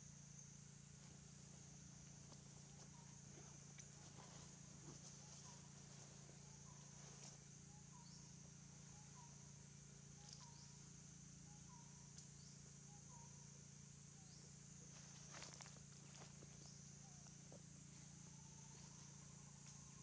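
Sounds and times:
high-pitched insect drone: 0:00.0 - 0:20.0
low steady hum: 0:00.0 - 0:20.0.

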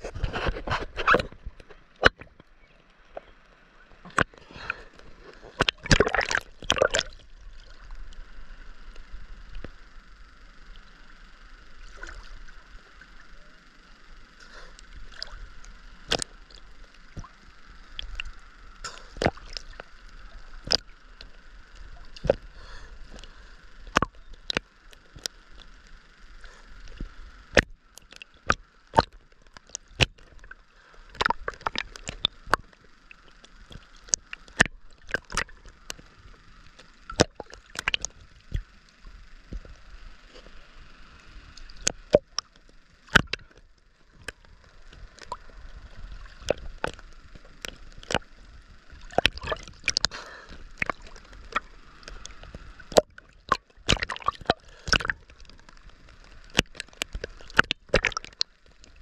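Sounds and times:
water sloshing and lapping: 0:04.0 - 0:07.9, 0:14.4 - 0:25.8, 0:26.4 - 0:38.7, 0:41.6 - 0:59.0
water slapping on camera: 0:05.4 - 0:07.3, 0:16.1 - 0:16.3, 0:31.2 - 0:32.6, 0:37.1 - 0:38.6, 0:43.1 - 0:43.6, 0:49.0 - 0:58.5.

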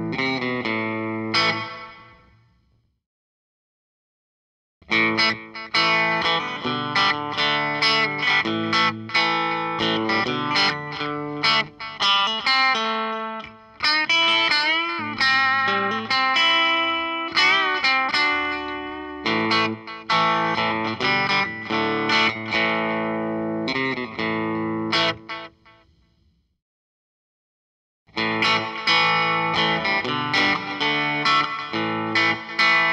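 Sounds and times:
electric guitar lead with delay: 0:28.2 - 0:32.9.

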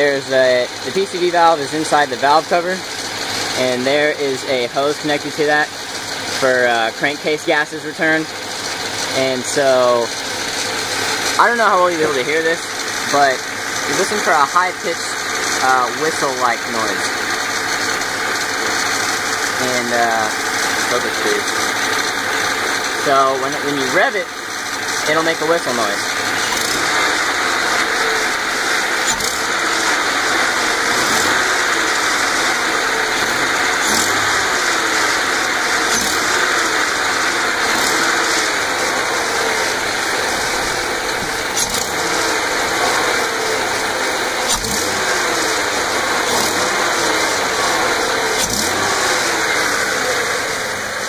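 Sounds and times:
car engine revving: 0:00.0 - 0:51.0.

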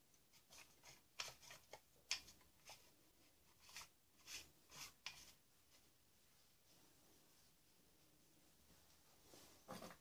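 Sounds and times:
plastic plumbing fittings scraping: 0:00.3 - 0:02.9, 0:03.5 - 0:05.4.

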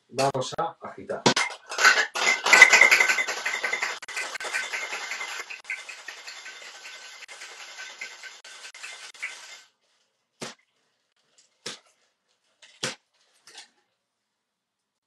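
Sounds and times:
metallic clinks and knocks: 0:01.4 - 0:09.5
ice rattling in cocktail shaker: 0:01.7 - 0:09.7.

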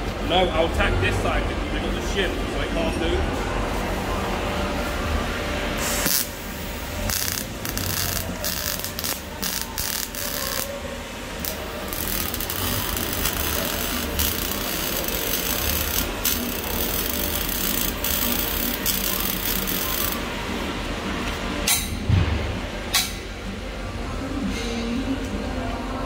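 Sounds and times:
welding arc crackling: 0:05.8 - 0:20.3.

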